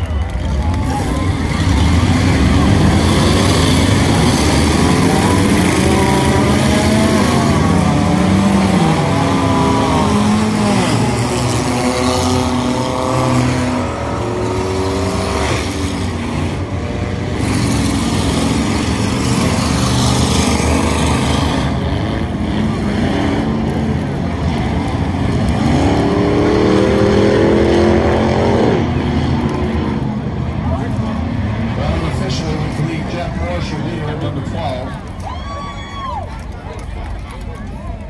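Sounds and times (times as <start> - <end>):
racing car engines: 0.0 - 38.0.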